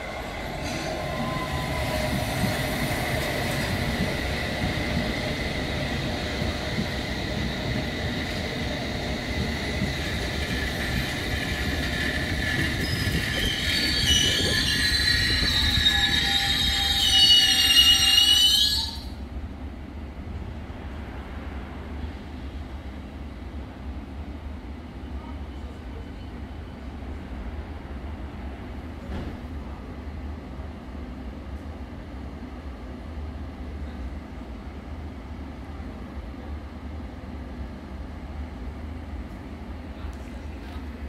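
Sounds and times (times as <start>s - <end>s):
train wheel and brake squeals: 0.0s - 4.1s, 10.0s - 19.2s
train rumble with high whine: 0.0s - 41.0s.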